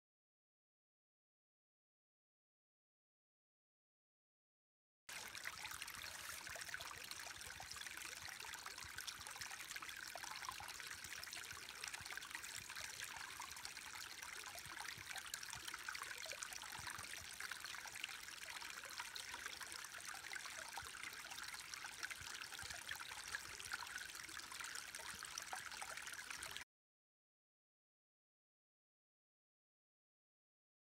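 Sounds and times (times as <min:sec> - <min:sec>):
creek trickling over waterfall: 0:05.1 - 0:26.6.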